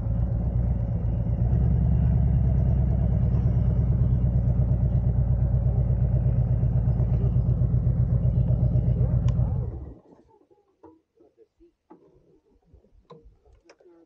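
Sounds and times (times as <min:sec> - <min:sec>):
motorcycle engine rumbling: 0:00.0 - 0:10.3.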